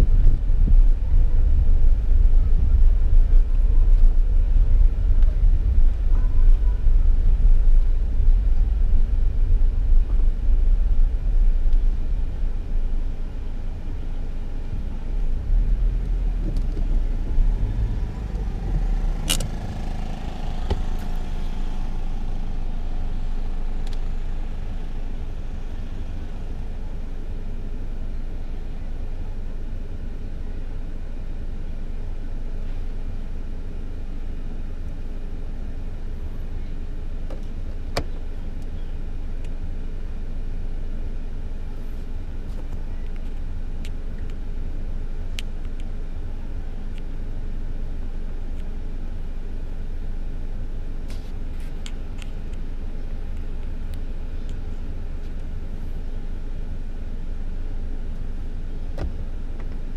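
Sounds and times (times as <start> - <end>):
car interior road noise: 0.0 - 59.9
sharp click: 19.2 - 19.6.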